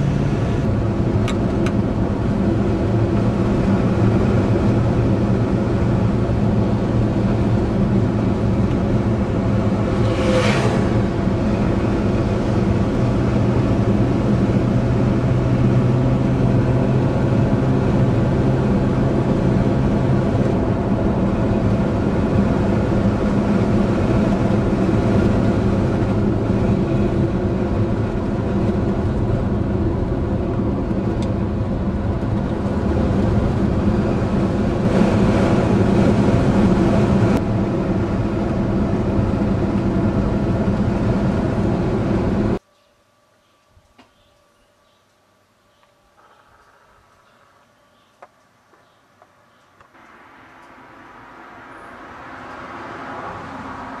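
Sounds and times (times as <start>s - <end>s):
car engine hum: 0.0s - 42.6s, 49.9s - 54.0s
tyre and road noise: 0.0s - 42.7s, 45.8s - 54.0s
passing car whoosh: 7.8s - 27.7s, 50.0s - 54.0s.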